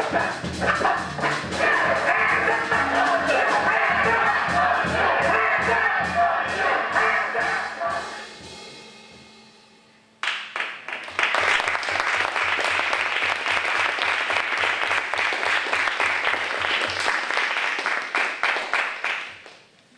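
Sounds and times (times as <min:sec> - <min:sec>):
audience applauding: 0:10.2 - 0:19.7.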